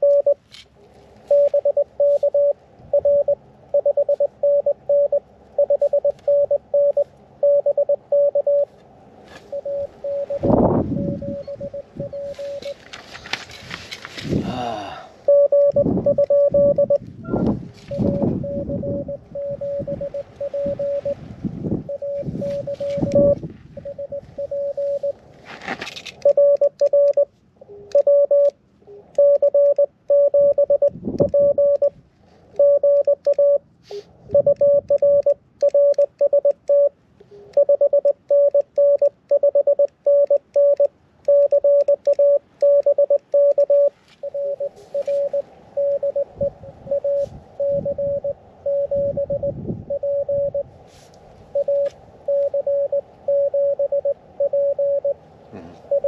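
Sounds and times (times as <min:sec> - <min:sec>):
morse code tone: 0:00.0 - 0:00.4, 0:01.2 - 0:08.8, 0:09.4 - 0:12.8, 0:15.3 - 0:25.2, 0:26.2 - 0:50.7, 0:51.5 - 0:55.2, 0:55.8 - 0:56.0
short rustling: 0:12.2 - 0:14.4.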